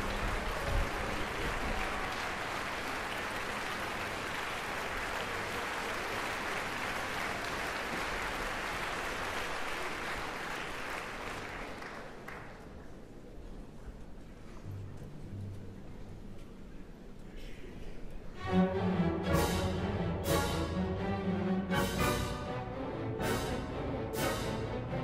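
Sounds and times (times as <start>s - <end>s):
audience applauding: 0.0s - 12.9s.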